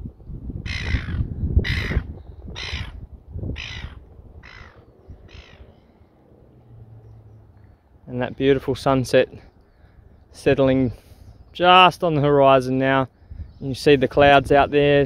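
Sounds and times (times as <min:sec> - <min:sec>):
bird cawing: 0:00.6 - 0:08.0, 0:09.5 - 0:10.3.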